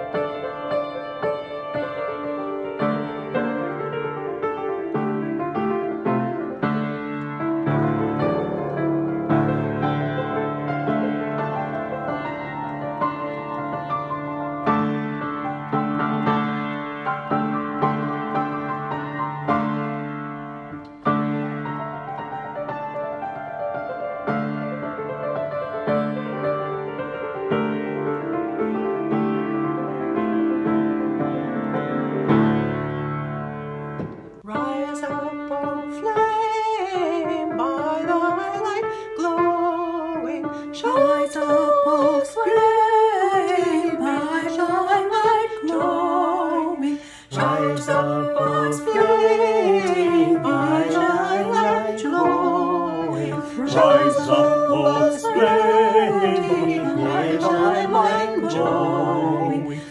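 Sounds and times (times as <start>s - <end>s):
grand piano chords: 0.0s - 59.9s
voices singing a hymn: 34.5s - 59.9s.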